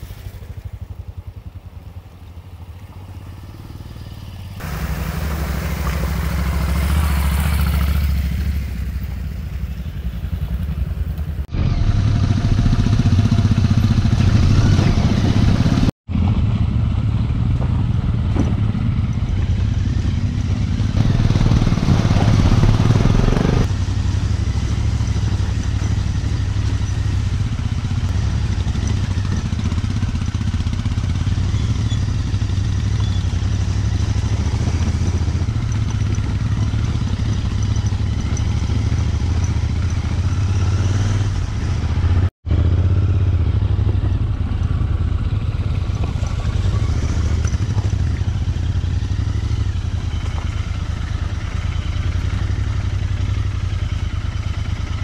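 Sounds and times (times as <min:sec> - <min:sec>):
motorcycle engine running: 0:00.0 - 0:55.0
road and wind noise: 0:00.0 - 0:55.0.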